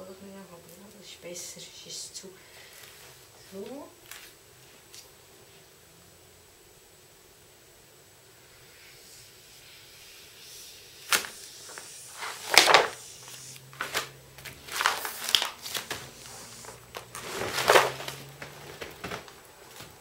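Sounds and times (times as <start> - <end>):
paper rustling and crinkling: 2.7 - 5.1, 11.1 - 20.0.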